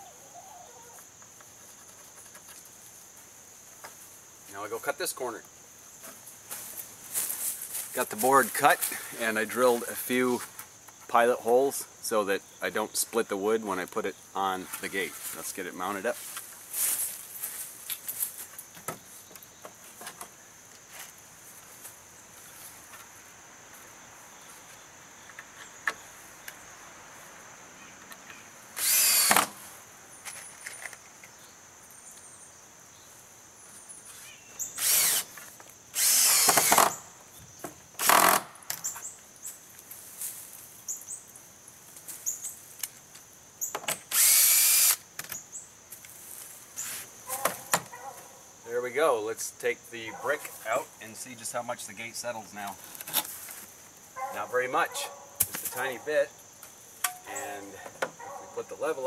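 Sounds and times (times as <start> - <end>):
cordless drill driving screws: 28.8 - 29.6, 34.8 - 35.3, 36.0 - 37.0, 38.0 - 38.5, 44.1 - 45.0.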